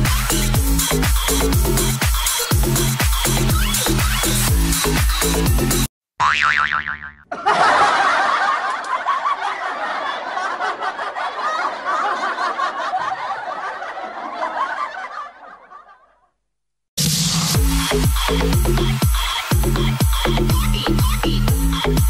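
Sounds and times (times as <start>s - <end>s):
canned laughter: 7.3s - 16.2s.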